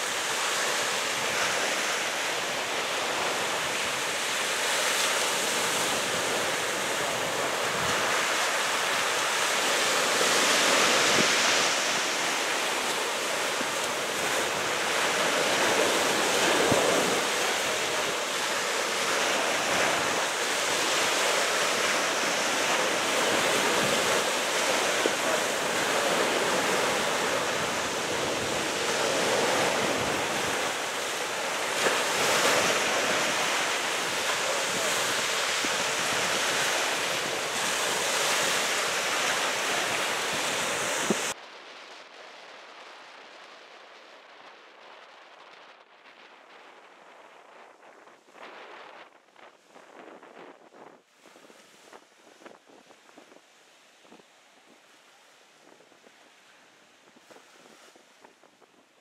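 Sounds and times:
waves rushing: 0.0 - 41.4
wind: 0.0 - 59.0.

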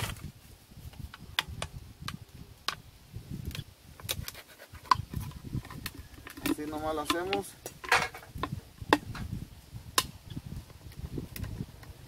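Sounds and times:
plastic bottles clicking and crinkling: 4.0 - 9.2.

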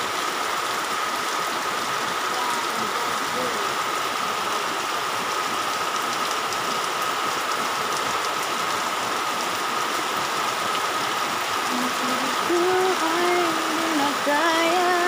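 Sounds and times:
heavy rain pouring: 0.0 - 15.0
water runoff: 0.0 - 15.0.

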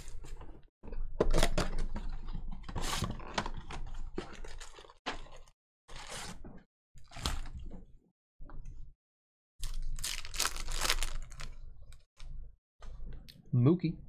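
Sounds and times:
packaging crinkling and tearing: 2.8 - 6.2, 9.6 - 12.1.

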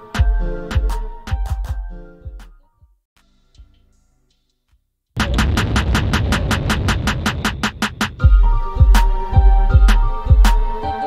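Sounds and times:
electronic music with bass beat: 0.0 - 2.5, 5.2 - 11.0
sharp clap: 5.2 - 8.4.

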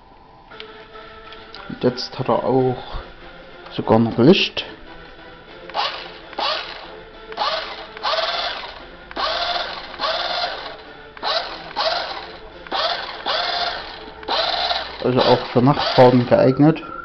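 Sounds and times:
electric motor whirring: 5.7 - 16.6.

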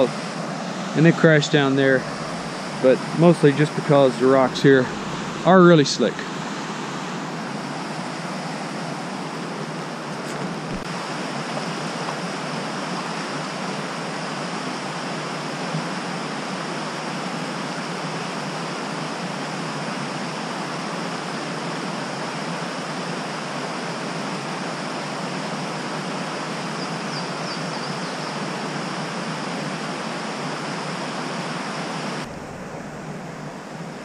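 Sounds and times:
water rushing at waterfall: 0.0 - 34.0.

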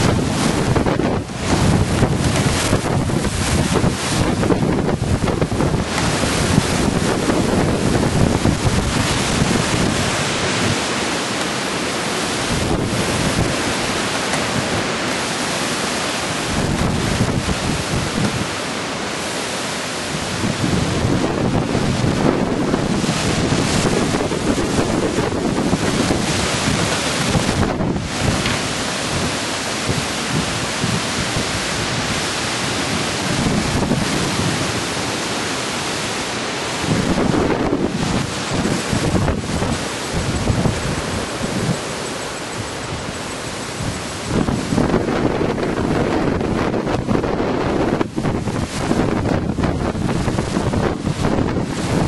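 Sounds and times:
wind buffeting microphone: 0.0 - 11.3, 12.2 - 18.6, 20.0 - 35.2, 36.6 - 52.0
trees rushing in wind: 0.0 - 52.0.

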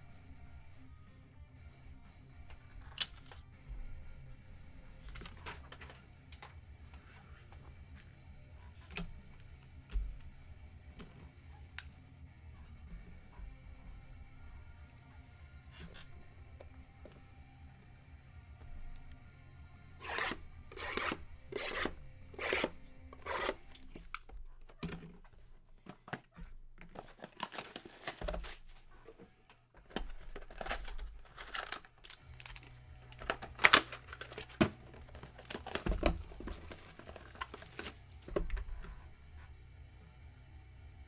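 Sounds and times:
plastic crinkling: 25.8 - 29.2, 29.8 - 38.3
plastic wrappers tearing: 26.8 - 28.9, 29.8 - 38.3.

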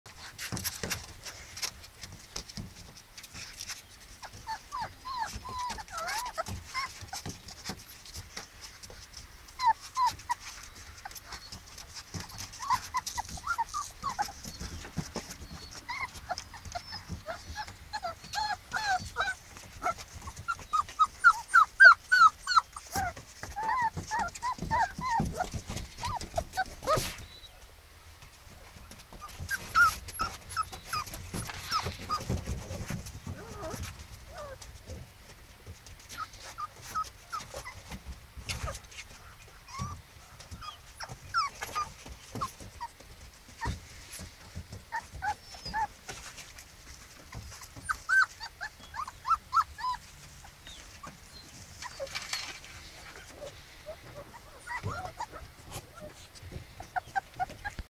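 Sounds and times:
paws ticking on a sheet: 0.1 - 27.3, 28.2 - 57.9
puppies whimpering and yelping: 3.3 - 27.6, 29.1 - 35.0, 36.0 - 57.9.

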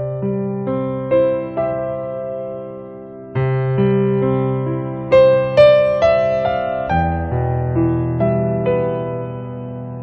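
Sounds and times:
keyboard music sustained notes: 0.0 - 10.0.

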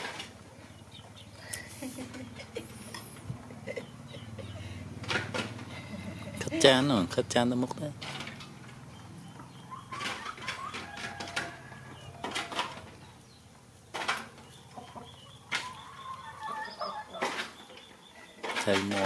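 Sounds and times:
hens clucking: 0.0 - 19.0.

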